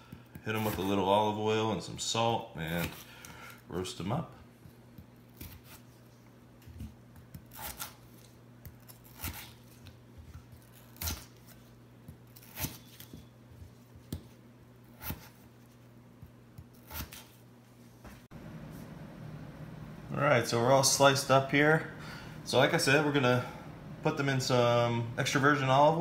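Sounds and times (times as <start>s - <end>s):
faint steady hum: 0.0s - 26.0s
knife slicing potato on board: 4.9s - 5.9s, 7.1s - 9.9s, 10.6s - 13.3s, 14.9s - 15.5s, 16.2s - 17.4s.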